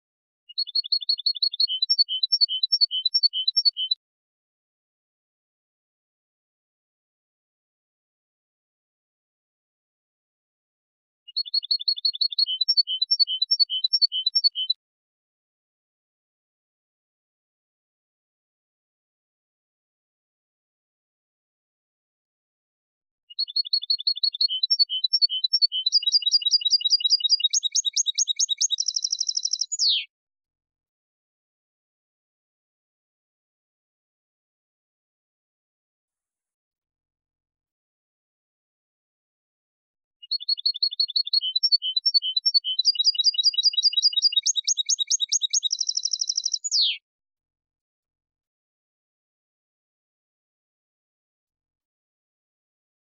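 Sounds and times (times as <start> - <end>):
goldfinch singing: 0.5 - 4.0, 11.3 - 14.8, 23.3 - 30.1, 40.2 - 47.0.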